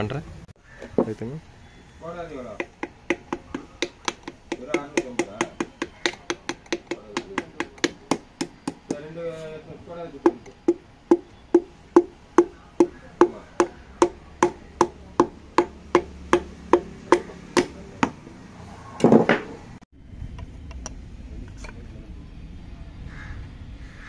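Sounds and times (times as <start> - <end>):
hammer handle tapping piston: 2.5 - 9.0, 10.2 - 18.2.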